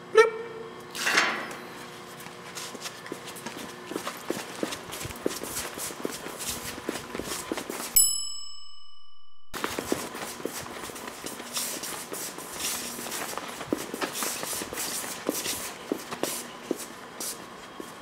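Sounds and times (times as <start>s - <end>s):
footsteps on concrete: 2.1s - 8.0s, 9.6s - 18.0s.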